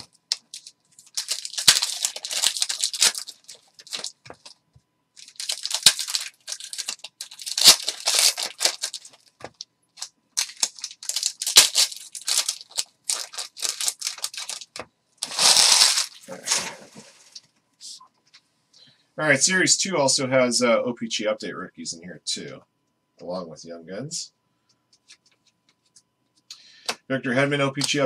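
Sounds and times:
foil wrappers tearing and crinkling: 0:00.0 - 0:04.6, 0:05.2 - 0:17.3.

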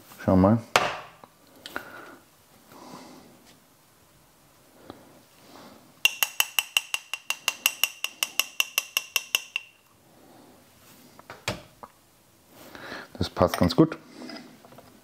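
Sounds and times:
metal spoon clinking in a jar: 0:06.1 - 0:09.8.

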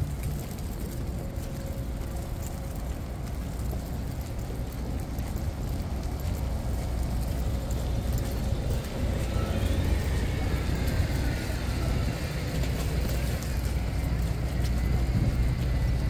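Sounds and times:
low rumble of city street: 0:00.0 - 0:16.0
faint voices: 0:07.6 - 0:15.9.

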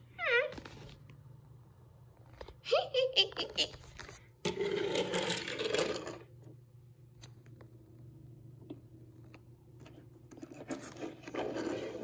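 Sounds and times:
low steady hum: 0:00.0 - 0:12.0
toy wheels rolling on wood: 0:04.5 - 0:06.3, 0:10.4 - 0:12.0.

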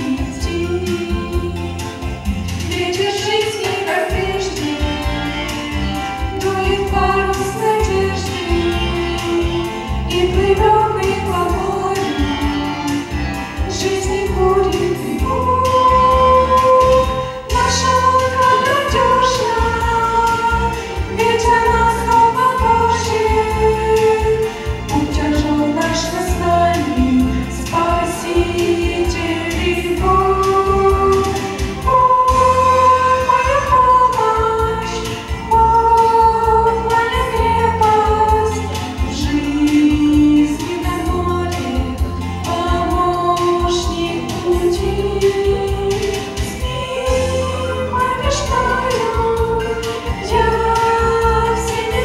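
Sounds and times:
instrumental accompaniment with bass: 0:00.0 - 0:52.0
girls singing together: 0:13.7 - 0:41.8, 0:42.4 - 0:52.0.

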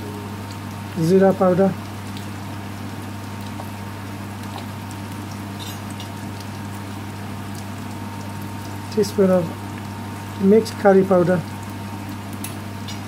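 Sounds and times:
onions frying crackles: 0:00.0 - 0:13.0
steady low hum: 0:00.0 - 0:13.0.

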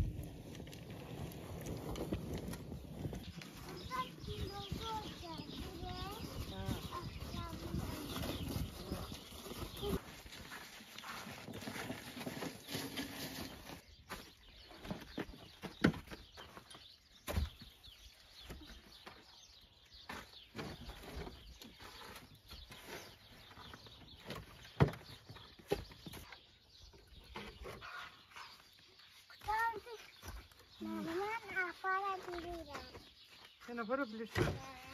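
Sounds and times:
wooden logs knocking and thudding: 0:11.4 - 0:17.8, 0:23.5 - 0:26.4.

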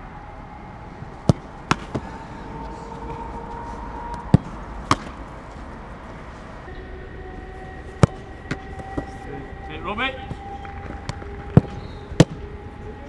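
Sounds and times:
ball slapping into gloves: 0:01.3 - 0:02.0, 0:04.1 - 0:05.2, 0:10.6 - 0:12.4.

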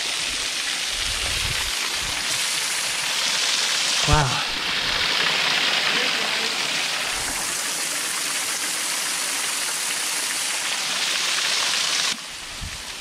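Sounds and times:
waterfall rushing: 0:00.0 - 0:12.2.

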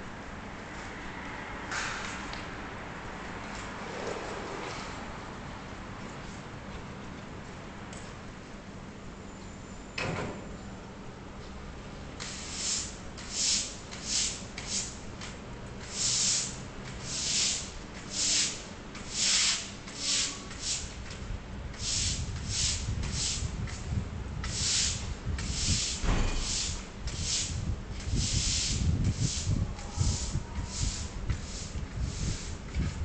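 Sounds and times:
pressure washer spraying in bursts: 0:12.2 - 0:15.0, 0:15.8 - 0:20.9, 0:21.8 - 0:23.4, 0:24.5 - 0:32.6.

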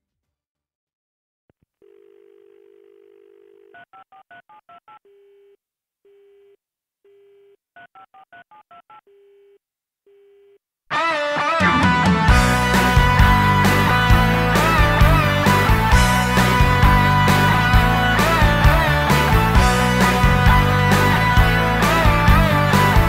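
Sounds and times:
dial tone: 0:01.8 - 0:04.4
rock band with guitars: 0:10.9 - 0:23.0.

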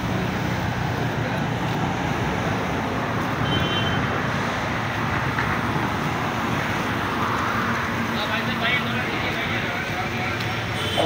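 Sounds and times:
cars driving on road: 0:00.0 - 0:11.0.

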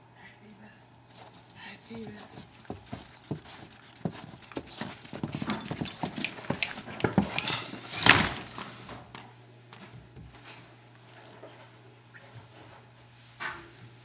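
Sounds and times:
clicks and scuffles: 0:01.1 - 0:11.7
dog panting: 0:01.2 - 0:07.8.

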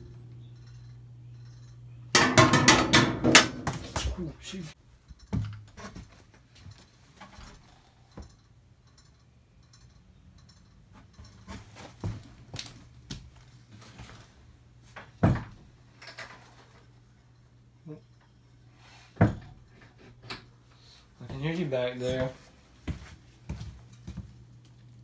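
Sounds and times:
faint low hum: 0:00.0 - 0:02.4
knocks and thumps in a room: 0:02.1 - 0:04.3, 0:05.0 - 0:06.8, 0:14.9 - 0:15.7, 0:19.2 - 0:19.7.

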